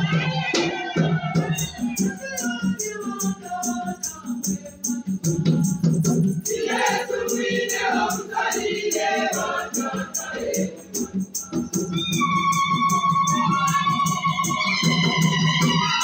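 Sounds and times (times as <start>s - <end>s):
rattle keeping a beat: 0.0s - 16.0s
choir singing a hymn: 6.4s - 11.2s.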